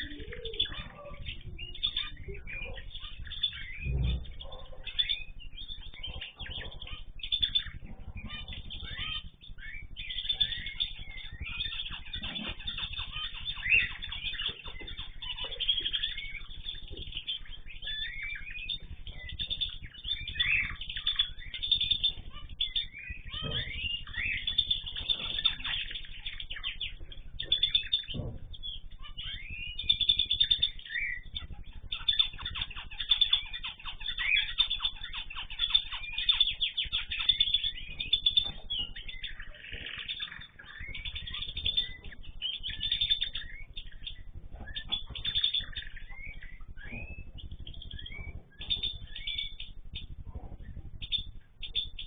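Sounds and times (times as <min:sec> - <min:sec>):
cage birds chirping and chattering: 0:00.0 - 0:52.0.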